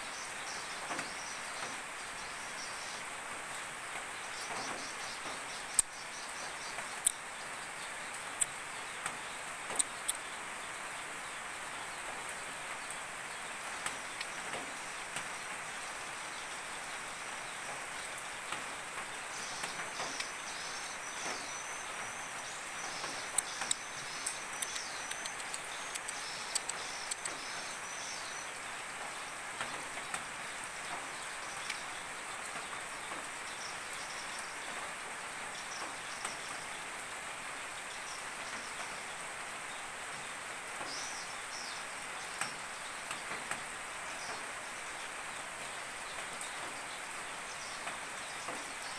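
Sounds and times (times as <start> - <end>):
rain hissing: 0.0 - 48.9
sharp clicks: 9.7 - 10.2, 23.3 - 27.4
bird chirping: 19.2 - 28.6.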